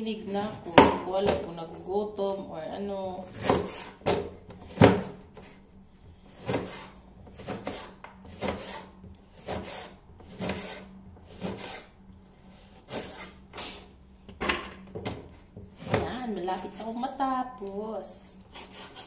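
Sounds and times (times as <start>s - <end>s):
knife cutting orange on cutting board: 3.3s - 5.1s, 6.4s - 11.9s, 12.7s - 13.9s, 15.1s - 16.9s.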